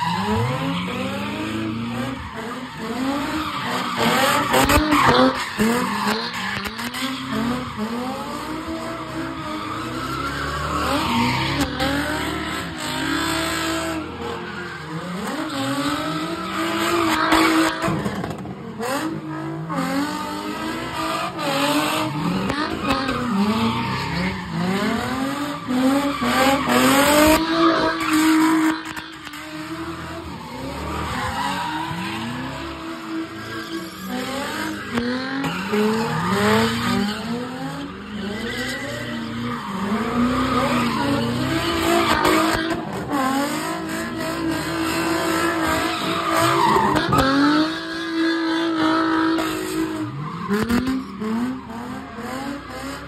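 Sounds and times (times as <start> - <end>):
tires squealing and skidding: 0.0 - 53.0
car engine revving hard: 0.2 - 53.0.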